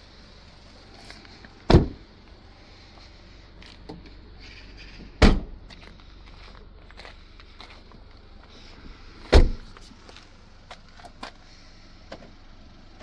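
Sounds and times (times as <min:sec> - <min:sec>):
car door closing: 0:01.7 - 0:02.0, 0:05.1 - 0:05.6, 0:09.3 - 0:09.7
car tailgate closing: 0:01.7 - 0:02.0, 0:05.2 - 0:05.5, 0:09.3 - 0:09.7.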